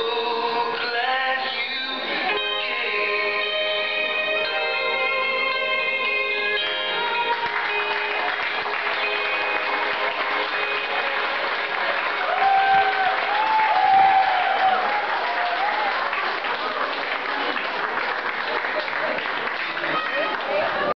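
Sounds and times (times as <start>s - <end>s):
held notes of song: 0.0s - 15.4s
audience applauding: 6.6s - 20.9s
shouted cheers: 11.6s - 17.6s, 19.5s - 20.9s.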